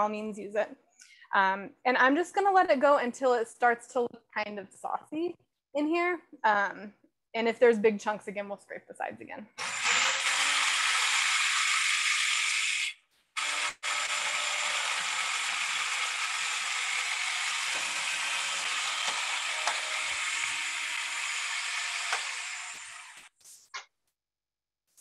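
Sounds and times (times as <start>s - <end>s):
food processor chopping: 9.6s - 23.3s.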